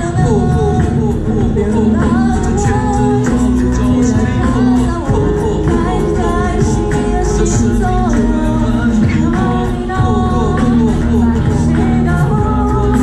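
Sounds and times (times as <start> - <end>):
electric bass: 0.0 - 13.0
live band playing pop music: 0.0 - 13.0
singers singing: 0.0 - 13.0.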